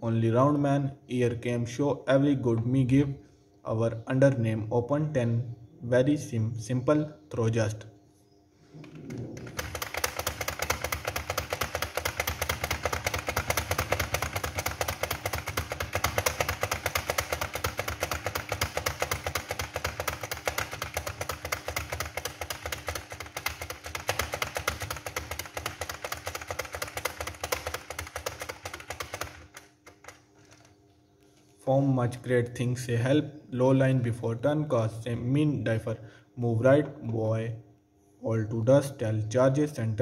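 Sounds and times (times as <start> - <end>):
fast keyboard typing: 9.0 - 30.8.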